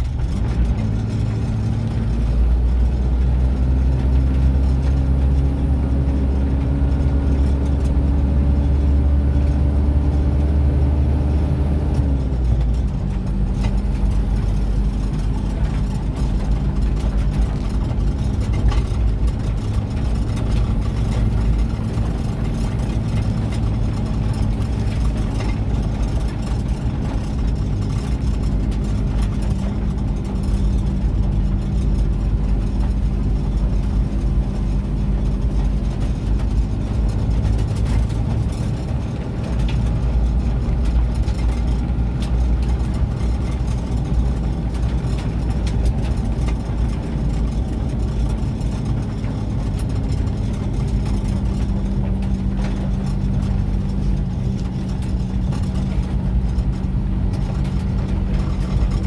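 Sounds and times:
car engine hum: 0.0s - 59.0s
tyre road rumble: 0.0s - 59.0s.

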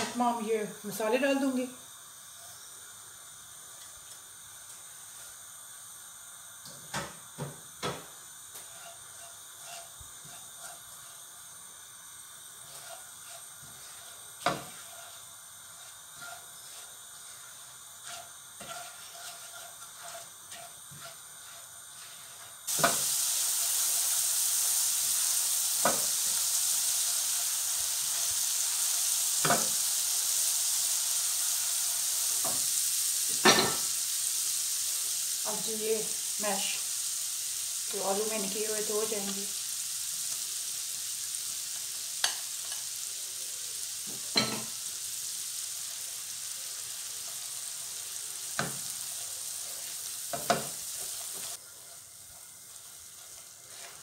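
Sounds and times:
frying sizzle: 0.0s - 54.0s
spatula scraping a frying pan: 8.5s - 11.4s, 12.6s - 33.9s, 46.8s - 54.0s.

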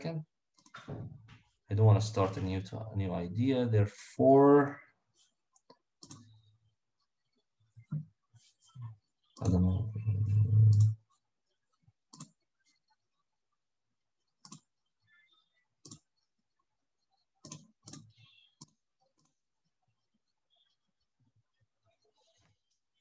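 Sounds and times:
computer mouse clicks: 5.6s - 6.4s, 10.7s - 11.0s, 12.1s - 12.4s, 14.4s - 14.7s, 15.8s - 16.2s, 17.4s - 19.4s.

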